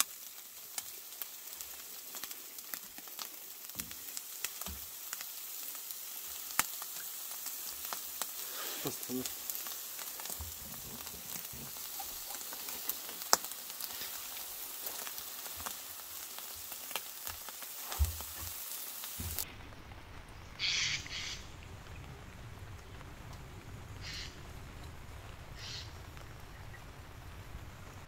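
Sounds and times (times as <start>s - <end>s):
chicken wings sizzling on a grill: 0.0s - 19.5s, 23.9s - 24.5s, 25.6s - 26.0s
low outdoor rumble: 19.3s - 28.0s.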